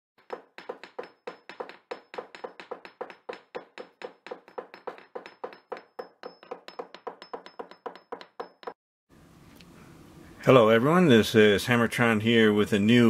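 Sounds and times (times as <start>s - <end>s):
rhythmic sharp knocking: 0.2s - 8.8s.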